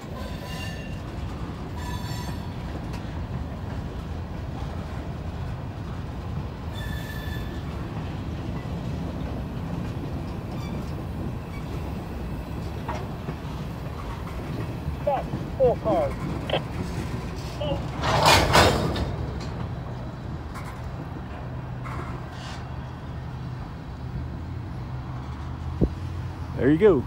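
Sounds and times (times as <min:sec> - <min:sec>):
train wheels rumbling on rail: 0:00.0 - 0:27.0
high wheel squeals: 0:00.2 - 0:01.0, 0:01.8 - 0:02.6, 0:06.7 - 0:07.7, 0:10.5 - 0:12.5.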